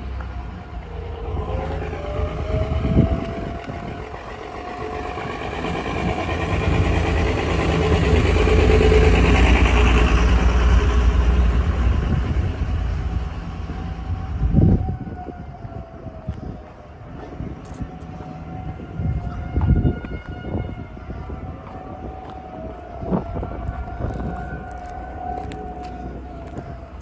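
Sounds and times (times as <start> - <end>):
rough truck engine rumbling past: 0.0 - 15.8
outdoor warning siren: 0.0 - 27.0.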